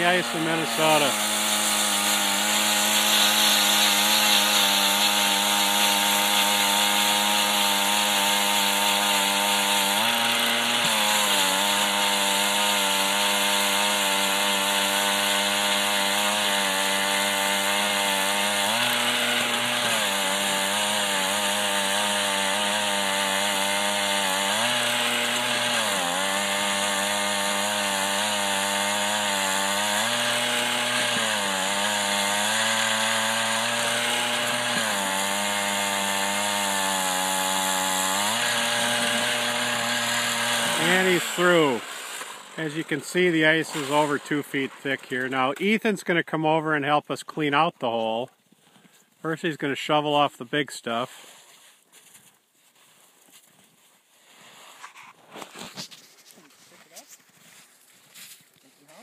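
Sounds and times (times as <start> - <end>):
ice auger engine boring: 0.0 - 45.7.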